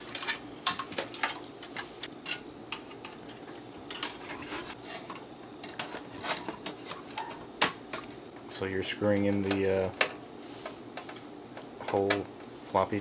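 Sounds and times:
metal parts clicking and clattering: 0.0s - 8.1s.

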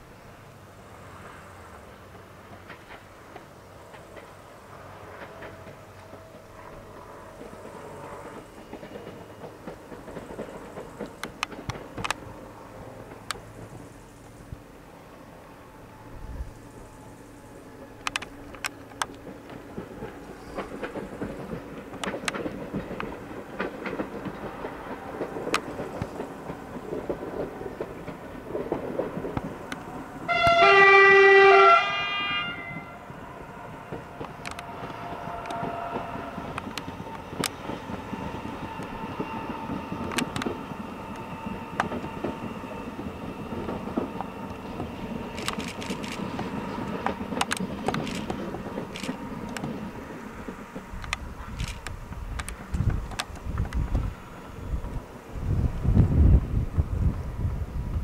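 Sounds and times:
train running hum: 0.0s - 58.0s
scattered clicks: 10.4s - 12.3s, 18.0s - 27.2s, 34.2s - 35.7s, 36.4s - 37.8s, 40.0s - 42.1s, 45.3s - 49.8s, 50.8s - 53.9s
train horn blast: 30.2s - 36.6s.

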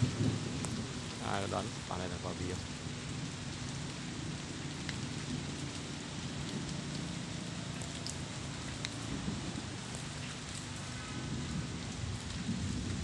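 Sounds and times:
rain on foliage: 0.0s - 13.0s.

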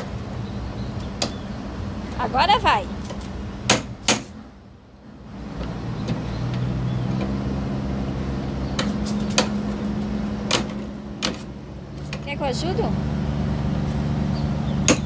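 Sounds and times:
vehicle engine running: 0.0s - 15.0s
hammer striking padlock: 3.7s - 4.3s.

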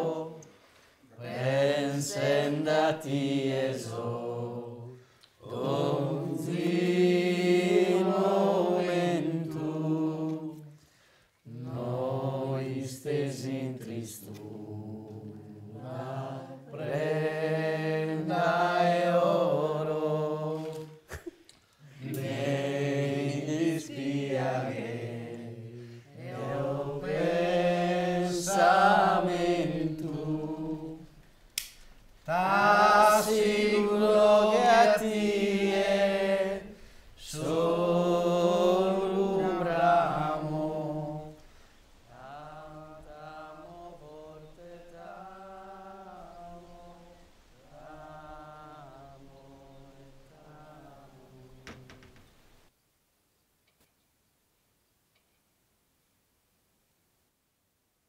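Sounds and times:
person singing unaccompanied: 0.0s - 0.4s, 1.2s - 10.7s, 11.5s - 21.1s, 22.0s - 31.2s, 32.3s - 41.4s, 42.1s - 52.1s.

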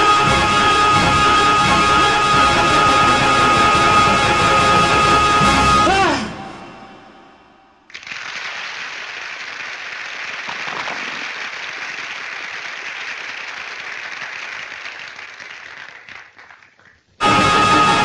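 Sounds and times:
orchestral music: 0.0s - 7.2s, 17.2s - 18.0s
audience applauding: 7.9s - 18.0s.

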